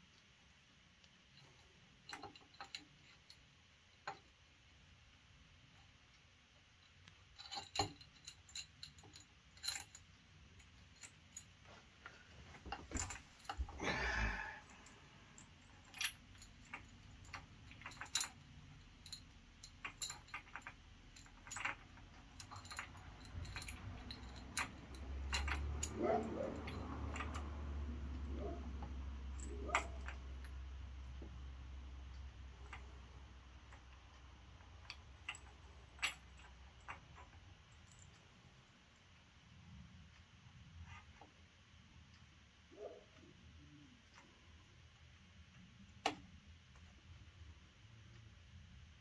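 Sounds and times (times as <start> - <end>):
metallic clinks of tools: 7.1 - 11.5, 12.7 - 30.7.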